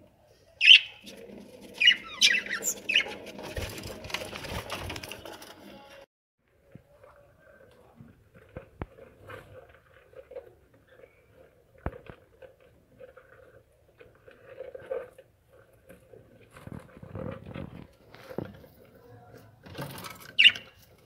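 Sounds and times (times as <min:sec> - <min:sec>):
birds scratching and rustling: 0:00.9 - 0:06.0.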